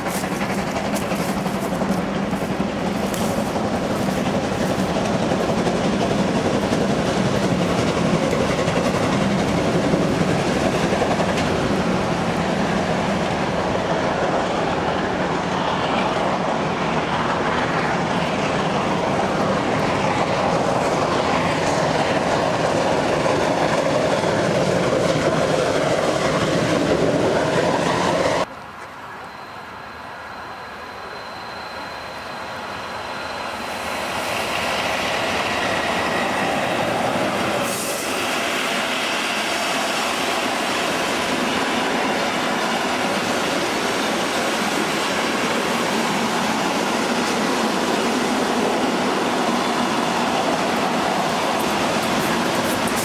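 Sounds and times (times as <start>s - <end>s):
train wheels clattering: 0.0s - 13.8s, 33.6s - 53.0s
distant steam locomotive: 0.0s - 53.0s
steam locomotive working: 0.0s - 53.0s.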